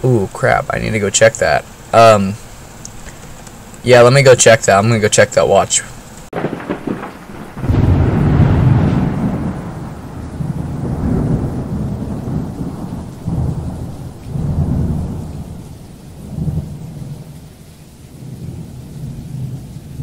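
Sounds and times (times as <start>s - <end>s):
rain hissing: 0.0s - 20.0s
thunder rumbling: 6.3s - 20.0s.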